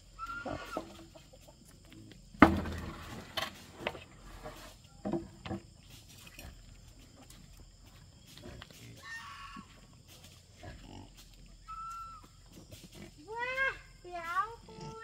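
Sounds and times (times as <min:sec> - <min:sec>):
farm animals calling: 0:00.0 - 0:01.8, 0:08.3 - 0:10.0, 0:10.6 - 0:15.0.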